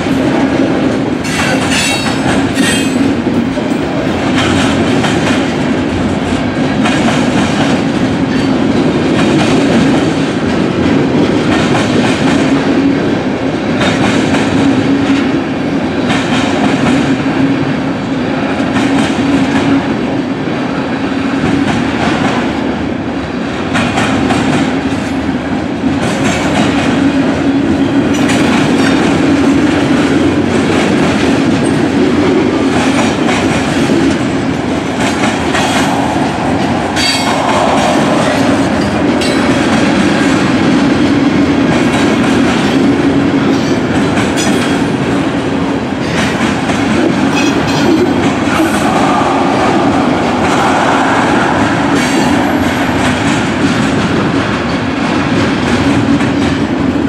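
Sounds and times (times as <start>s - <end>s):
freight train wheels rumbling: 0.0s - 57.0s
wheels clacking over rail joints: 0.9s - 5.6s.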